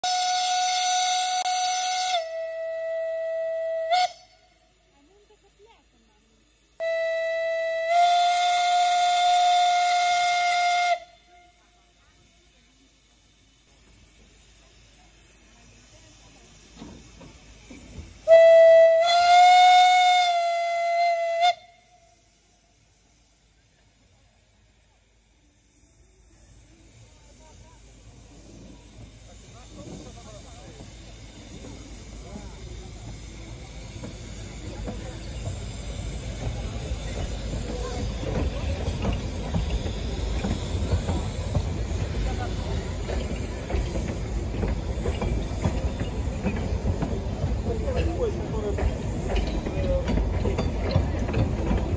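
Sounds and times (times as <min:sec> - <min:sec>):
steam locomotive whistle blast: 0:00.0 - 0:04.8, 0:06.8 - 0:11.7, 0:18.2 - 0:22.8
faint steam hissing: 0:00.0 - 0:51.9
train rumbling on rails: 0:00.0 - 0:51.9
wheels and couplings clanking: 0:33.9 - 0:51.9.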